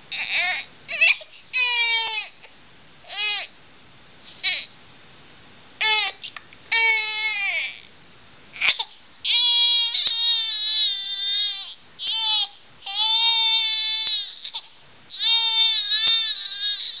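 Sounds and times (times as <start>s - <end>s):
infant crying: 0.1s - 2.4s, 3.1s - 3.5s, 4.4s - 4.7s, 5.8s - 7.9s, 8.6s - 17.0s.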